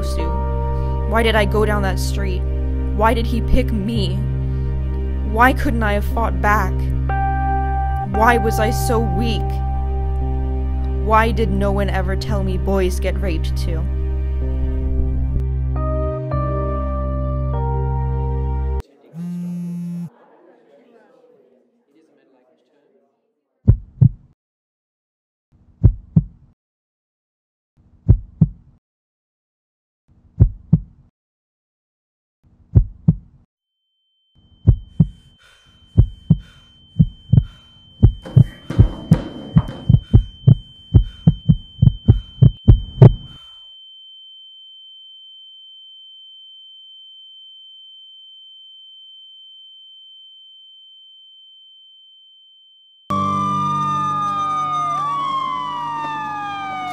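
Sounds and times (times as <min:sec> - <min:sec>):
heartbeat thumps: 0:23.7 - 0:24.4, 0:25.8 - 0:26.4, 0:28.1 - 0:28.7, 0:30.4 - 0:31.0, 0:32.7 - 0:33.4, 0:34.6 - 0:35.3, 0:36.0 - 0:43.4.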